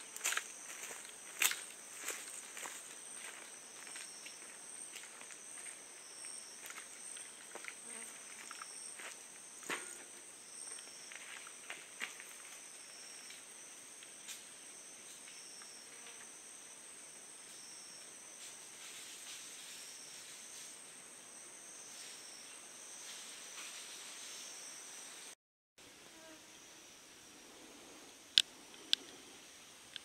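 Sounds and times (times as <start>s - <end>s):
high-pitched insect chorus trilling: 0.0s - 25.3s
faint ticks: 28.3s - 29.2s.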